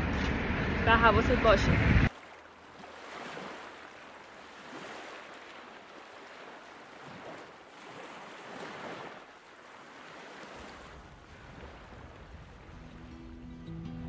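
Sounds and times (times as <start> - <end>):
small waves lapping on pebbles: 2.1 - 13.1.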